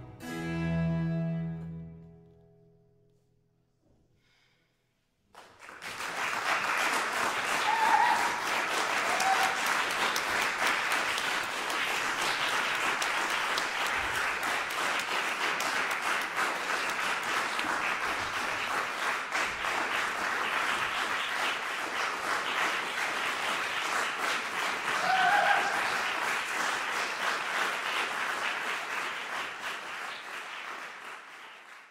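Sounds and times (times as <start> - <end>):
audience applauding: 5.3 - 31.9.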